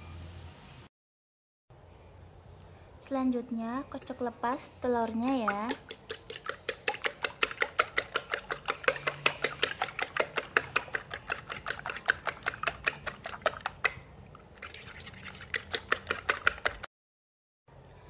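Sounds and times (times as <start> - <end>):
fork clicking against glass bowl: 4.0 - 14.0, 15.4 - 16.9.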